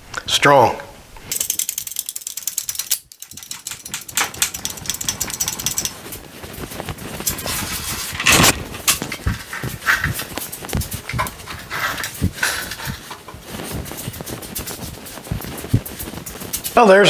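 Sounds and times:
engine hoist clicking and rattling: 1.3s - 6.0s.

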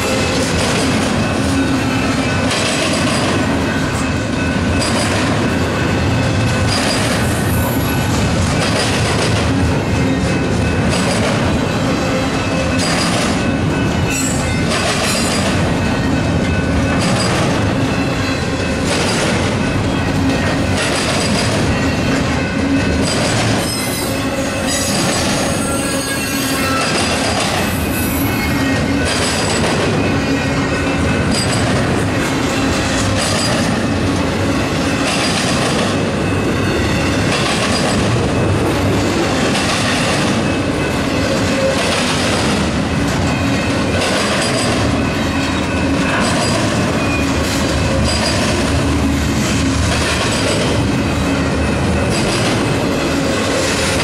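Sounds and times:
steel wheels rumbling on rail: 0.0s - 54.0s
wheels squealing: 23.1s - 29.4s.

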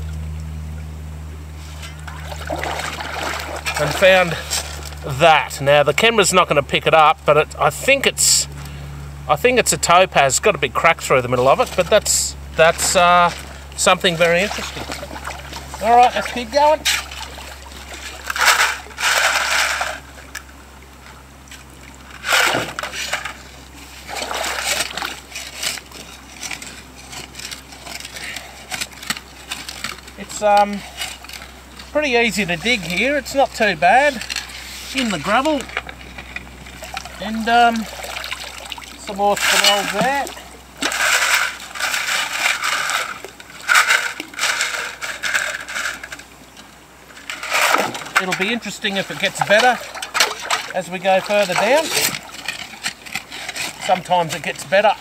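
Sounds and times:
gravel grinding in a sieve: 1.6s - 8.5s, 9.3s - 20.4s, 22.0s - 46.3s, 47.1s - 55.0s
water splashing: 1.9s - 6.4s, 11.3s - 26.4s, 29.3s - 45.5s, 47.4s - 55.0s
shovel digging into gravel: 18.0s - 20.1s, 39.2s - 46.0s, 47.3s - 54.9s.

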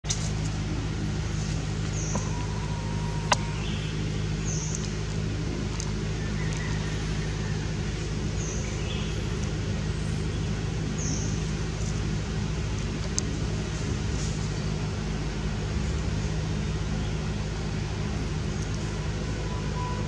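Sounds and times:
low engine hum: 0.0s - 20.0s
high bird chirps: 1.9s - 4.8s.

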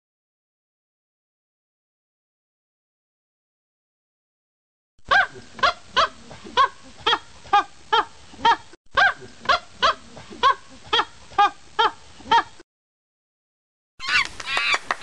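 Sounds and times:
animal calls rising and falling: 14.0s - 15.0s.

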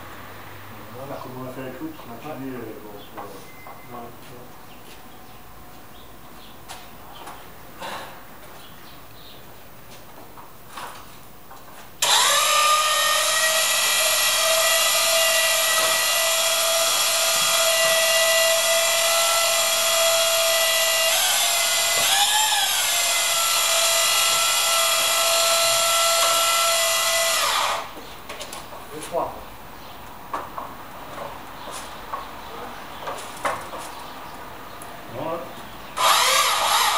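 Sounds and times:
electric motor whine: 12.0s - 27.9s, 36.0s - 36.9s.

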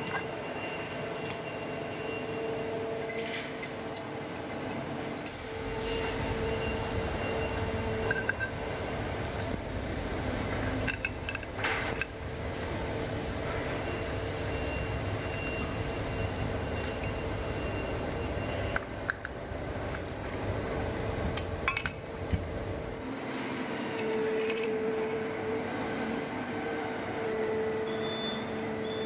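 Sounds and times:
clinks of parts being handled: 0.0s - 2.0s, 7.7s - 8.6s, 10.8s - 12.2s, 16.8s - 20.4s, 21.4s - 22.5s, 23.8s - 25.3s
workshop hum and rumble: 0.0s - 29.0s.

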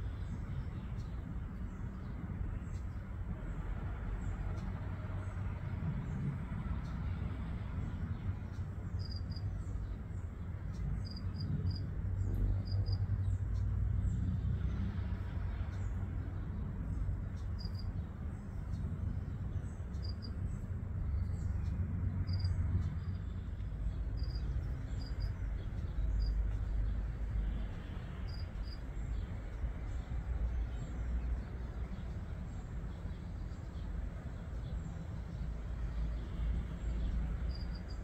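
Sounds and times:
steady low rumble: 0.0s - 38.0s
cricket chirping: 9.0s - 9.5s, 11.0s - 11.9s, 12.6s - 13.1s, 17.5s - 17.9s, 19.9s - 20.4s, 22.2s - 23.3s, 24.1s - 25.4s, 26.0s - 26.6s, 28.2s - 28.8s, 37.3s - 38.0s.

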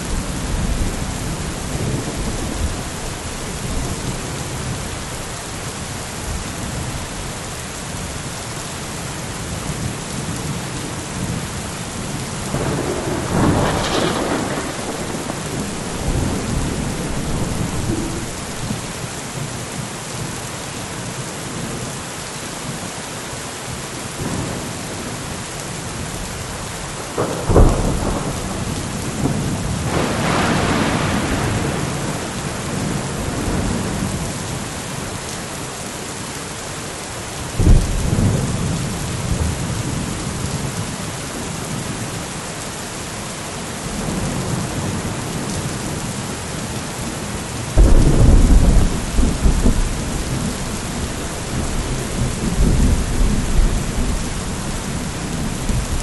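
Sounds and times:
steady rain: 0.0s - 56.0s
thunder rumbling: 12.4s - 18.9s, 27.0s - 34.4s, 37.6s - 40.4s, 47.7s - 56.0s.

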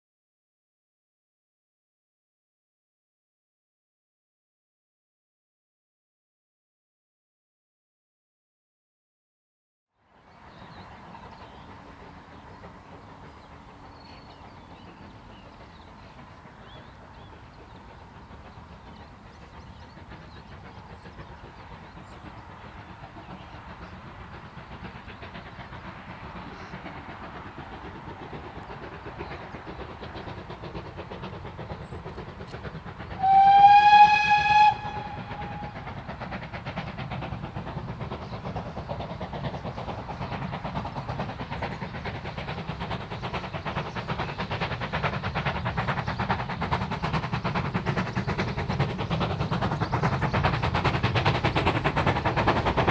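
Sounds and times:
steam locomotive running: 10.1s - 52.9s
steam whistle blast: 33.2s - 35.8s.

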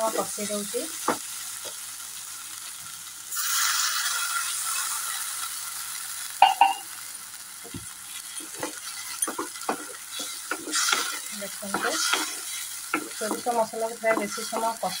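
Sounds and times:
loud sizzling in hot oil: 0.0s - 15.0s
spatula taps and scrapes: 7.7s - 15.0s
wooden spatula knocking on pan: 8.6s - 15.0s.

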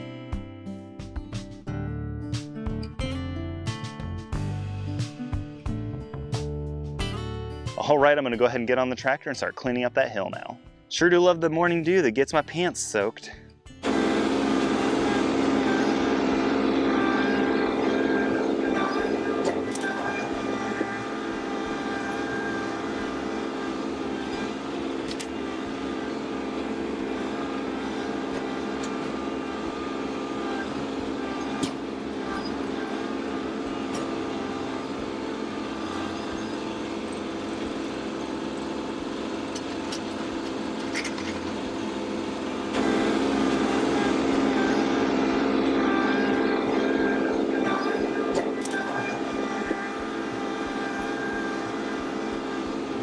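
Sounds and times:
tractor diesel engine running: 13.8s - 53.0s.

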